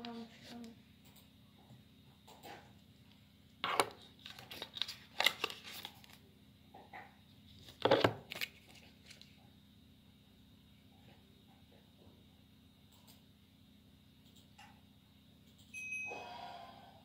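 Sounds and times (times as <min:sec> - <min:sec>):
plastic and paper packaging rustling: 0:03.6 - 0:06.2, 0:07.5 - 0:09.4.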